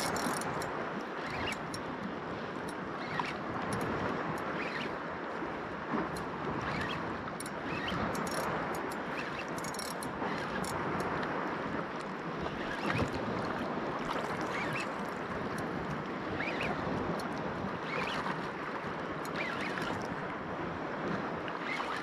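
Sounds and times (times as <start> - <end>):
sea wash: 0.0 - 22.0
faint rising squeaks: 14.4 - 15.1, 16.4 - 16.8, 17.8 - 18.3, 19.2 - 20.0.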